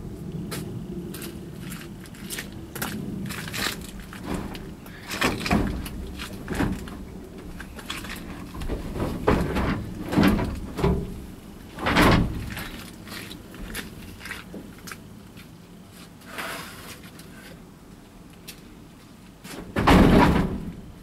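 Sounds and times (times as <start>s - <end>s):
wooden boards knocking and scraping: 3.7s - 12.9s, 19.5s - 20.9s.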